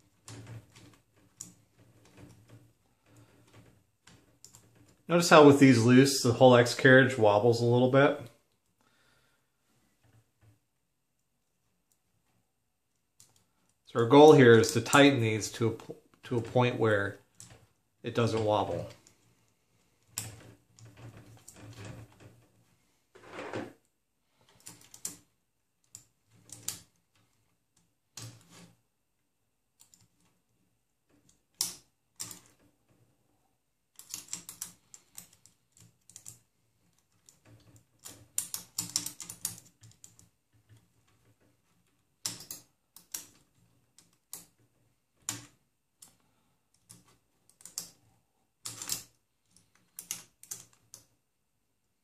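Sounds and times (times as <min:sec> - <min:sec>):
hex keys clicking on bolts: 0:34.0 - 0:36.4, 0:37.2 - 0:40.3, 0:42.2 - 0:43.4, 0:48.6 - 0:51.0.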